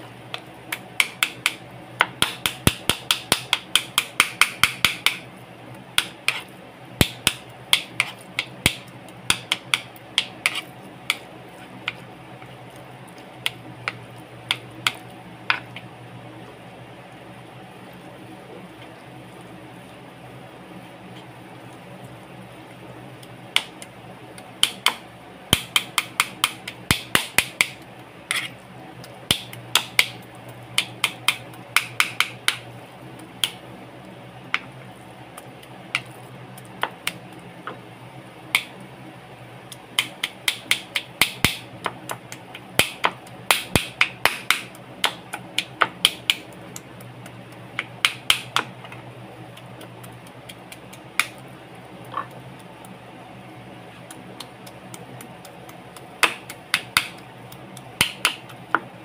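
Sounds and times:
knife chopping on cutting board: 0:07.0 - 0:11.2, 0:56.2 - 0:57.2.

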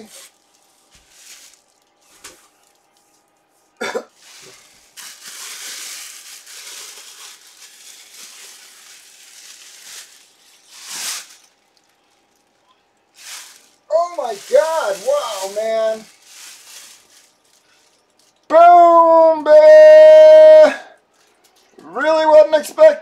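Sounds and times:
packing wrap rustling: 0:00.0 - 0:03.3, 0:04.2 - 0:18.5.

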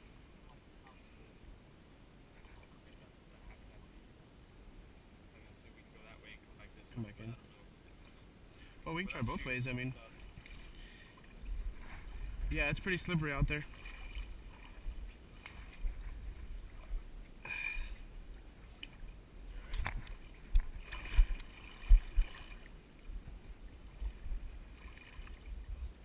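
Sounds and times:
water sloshing and lapping: 0:07.5 - 0:26.0.

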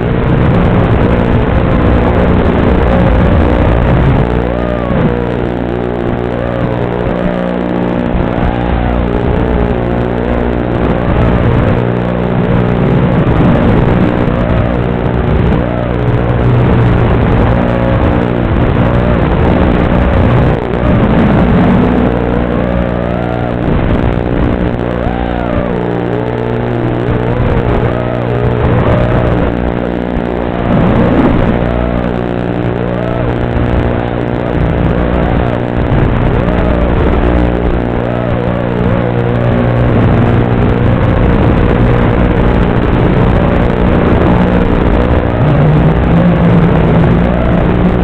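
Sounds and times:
quadcopter motors whining: 0:00.0 - 0:42.4, 0:43.4 - 0:48.0
steady electrical buzz: 0:00.0 - 0:48.0.

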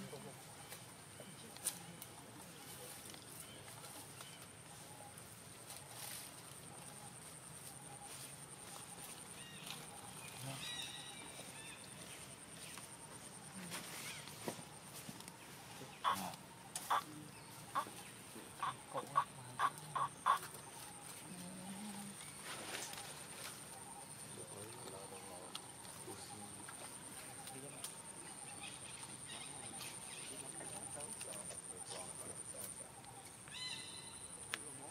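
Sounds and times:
clucking animal calls: 0:15.6 - 0:26.6.

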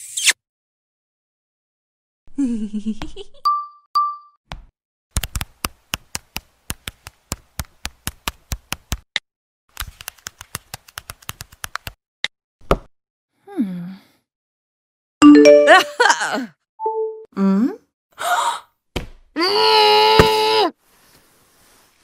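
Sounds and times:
touchscreen keyboard clicks: 0:05.2 - 0:09.0.

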